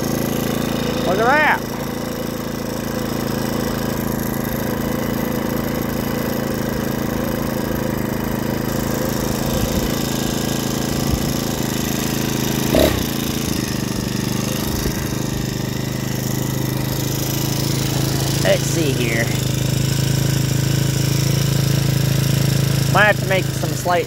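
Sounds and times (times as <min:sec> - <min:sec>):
small engine running steadily: 0:00.0 - 0:24.0.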